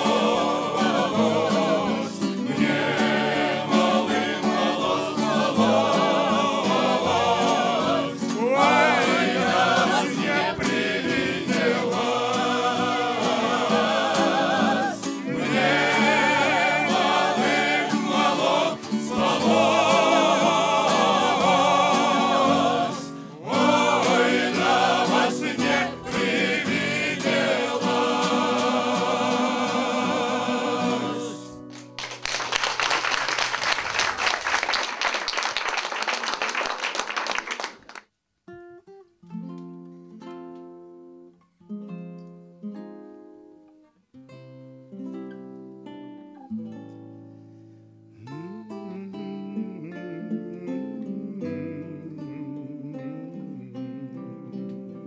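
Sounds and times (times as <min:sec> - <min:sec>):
mixed choir singing in harmony: 0:00.0 - 0:31.6
acoustic guitar: 0:00.0 - 0:33.9, 0:37.5 - 0:55.0
audience applause: 0:31.7 - 0:38.1.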